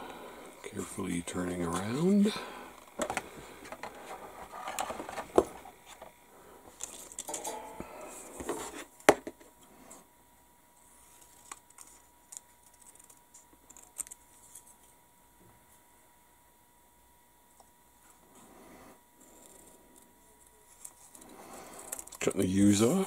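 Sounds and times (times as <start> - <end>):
plastic model handling rustle: 2.9 - 6.1, 10.8 - 15.0, 19.4 - 22.8.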